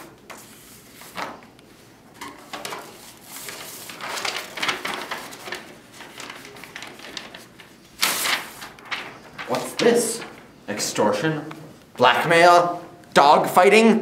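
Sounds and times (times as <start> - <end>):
folders and paper rustling: 0.0 - 10.6.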